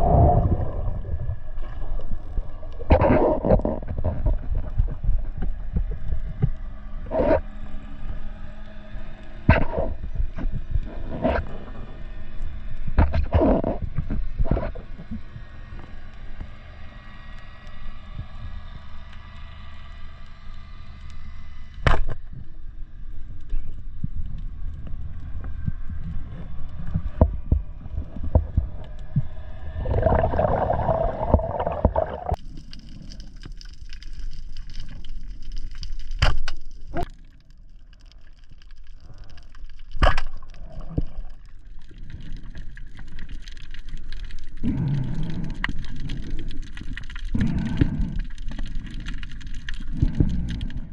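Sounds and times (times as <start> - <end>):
muffled underwater gurgling: 0.0 - 7.5, 9.4 - 12.1, 13.0 - 15.3, 24.8 - 33.0, 44.4 - 50.9.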